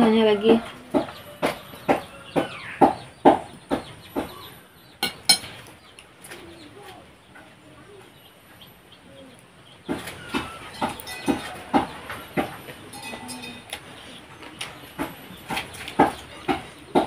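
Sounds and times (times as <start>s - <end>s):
hen clucking: 0.0s - 17.0s
metal spoon clinking on plate: 5.0s - 5.5s, 12.9s - 13.8s.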